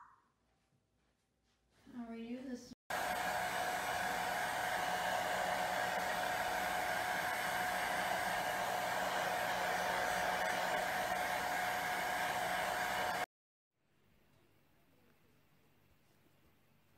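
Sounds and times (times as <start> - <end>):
hair dryer running: 2.9 - 13.3.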